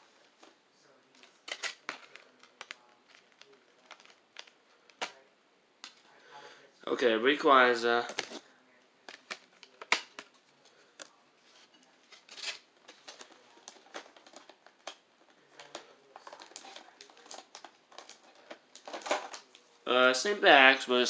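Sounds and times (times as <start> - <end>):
packaging rustling: 1.1 - 5.2, 9.1 - 19.6
clicks and taps of packaging: 1.2 - 5.2, 9.1 - 10.4, 12.8 - 19.6.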